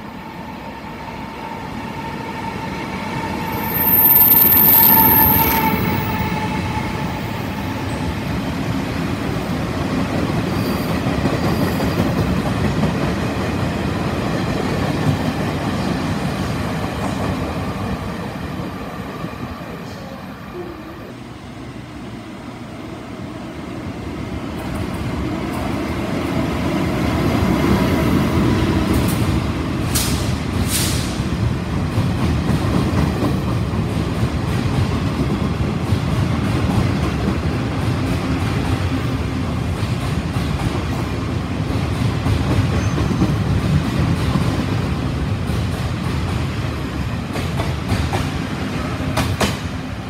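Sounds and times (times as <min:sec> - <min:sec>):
train wheels rumbling: 0:24.0 - 0:50.0
rapid rail clicks: 0:49.1 - 0:49.7.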